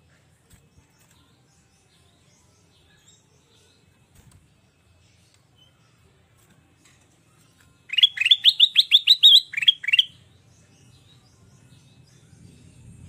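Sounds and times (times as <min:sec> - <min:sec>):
bird chirping rapidly: 0:07.9 - 0:10.2.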